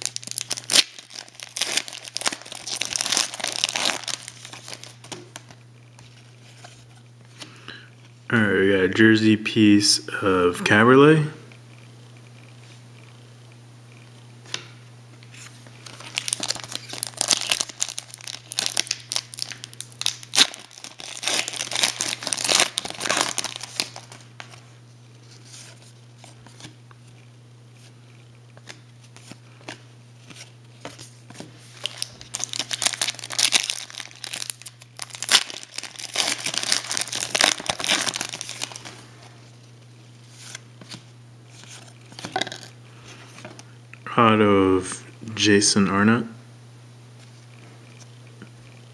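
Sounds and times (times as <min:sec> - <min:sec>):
card pack wrappers crinkling: 0:00.0 - 0:06.8, 0:15.4 - 0:24.6, 0:28.6 - 0:39.1, 0:40.3 - 0:43.6
cards rustling: 0:00.0 - 0:07.6, 0:15.3 - 0:24.6, 0:28.6 - 0:39.0, 0:40.2 - 0:43.6.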